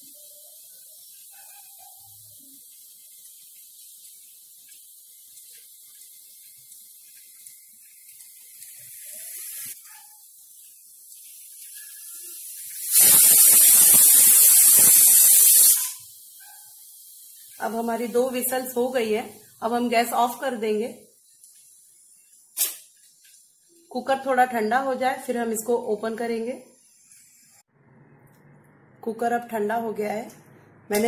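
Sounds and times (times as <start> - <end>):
pressure cooker whistling: 11.7 - 16.1.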